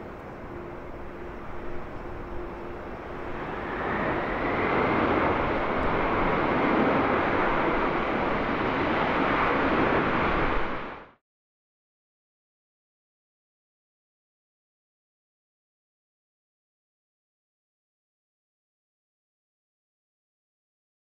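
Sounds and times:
jet engines roaring: 0.0 - 11.1.

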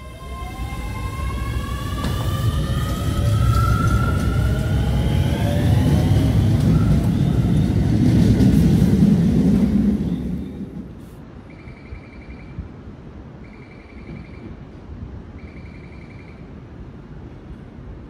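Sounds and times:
train wheel and track rumble: 0.0 - 18.0
faint beeping tones: 11.5 - 12.6, 13.4 - 14.6.

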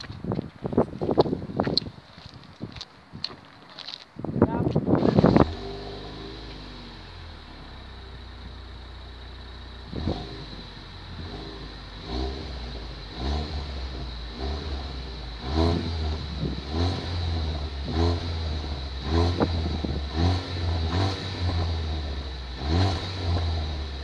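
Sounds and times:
car engine idling and revving: 4.9 - 24.0.

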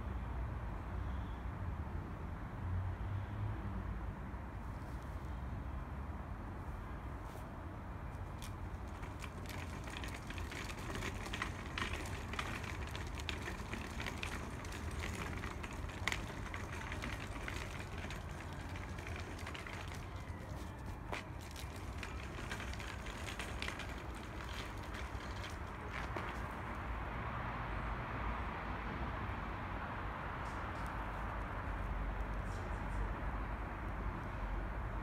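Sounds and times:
shopping trolley rolling on pavement: 8.0 - 27.1.

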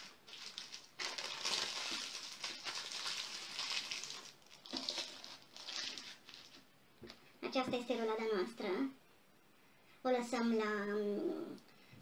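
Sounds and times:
paper crinkling and rustling: 0.0 - 6.7.

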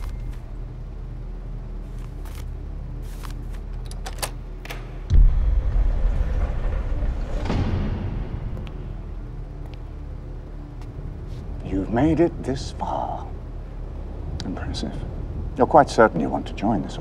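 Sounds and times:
low cinematic drone: 5.0 - 17.0
deep boom with rumble: 5.1 - 9.0.

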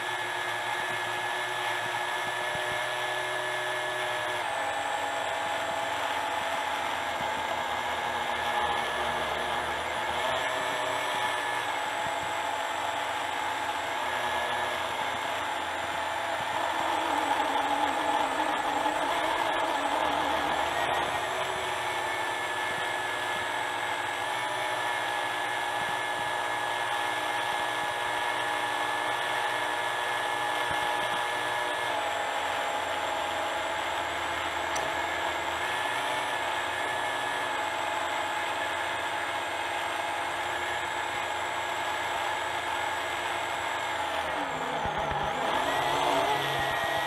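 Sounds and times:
drone propellers whining: 0.0 - 28.2, 41.9 - 47.0.

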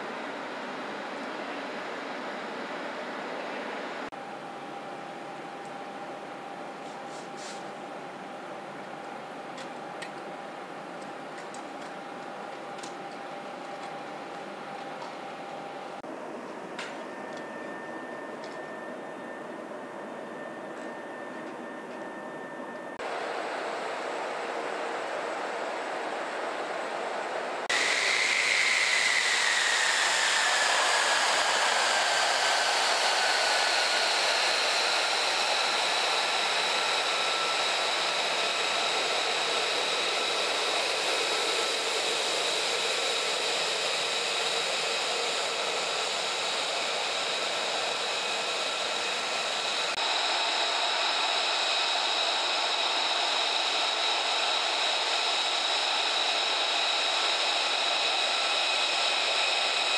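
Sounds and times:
jet turbine whine: 0.0 - 59.9
rushing hiss: 27.7 - 51.1.

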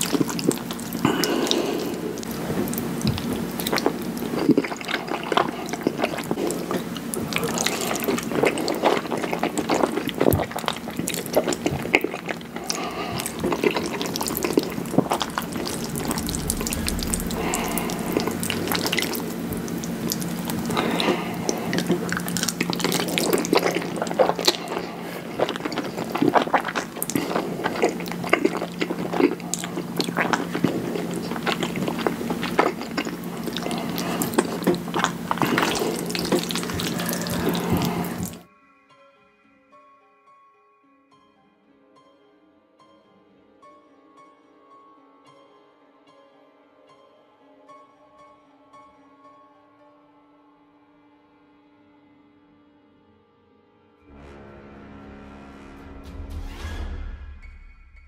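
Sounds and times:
chewing and slurping noodles: 0.0 - 38.5
low steady hum: 0.0 - 38.5.

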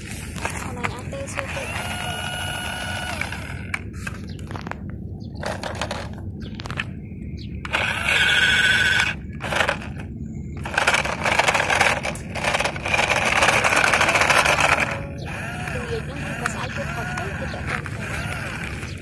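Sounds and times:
toy electric motor whining: 1.3 - 3.7, 7.7 - 10.0, 10.6 - 19.0.

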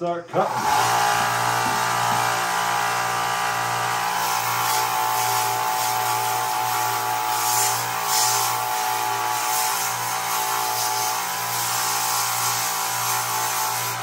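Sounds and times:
belt grinder motor hum: 0.3 - 14.0
metal grinding hiss: 4.1 - 14.0.

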